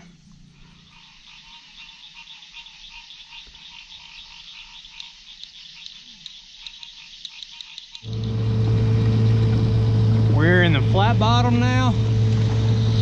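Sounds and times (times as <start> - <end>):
frogs calling: 0.5 - 8.4.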